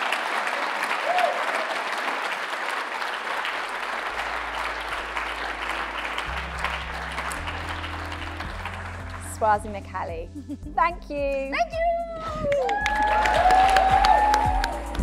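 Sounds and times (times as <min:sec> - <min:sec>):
applause: 0:00.0 - 0:10.0, 0:12.5 - 0:15.0
low bass music: 0:04.1 - 0:15.0.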